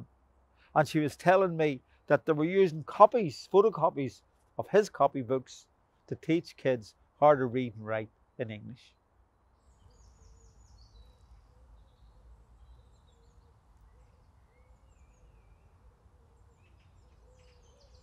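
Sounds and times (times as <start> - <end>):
small birds chirping: 8.7 - 18.0.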